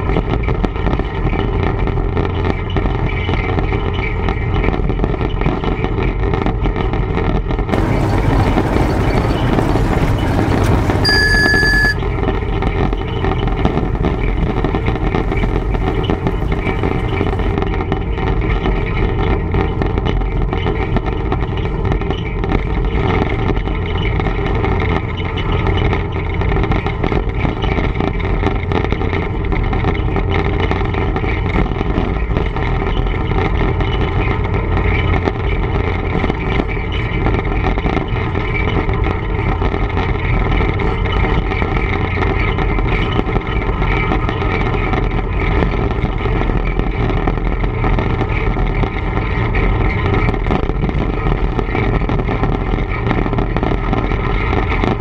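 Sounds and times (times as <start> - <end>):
diesel locomotive engine drone: 7.7 - 19.5.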